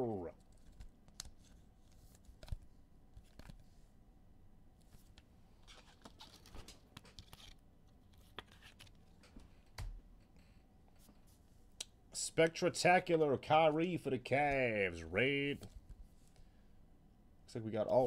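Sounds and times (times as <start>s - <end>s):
trading cards rustling and clicking: 0.4s - 3.7s, 4.8s - 10.4s.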